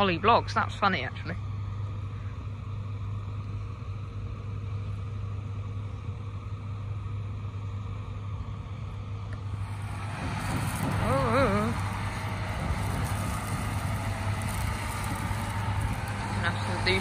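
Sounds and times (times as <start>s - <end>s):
harvester engine droning: 0.0s - 17.0s
field noise rush: 9.2s - 17.0s.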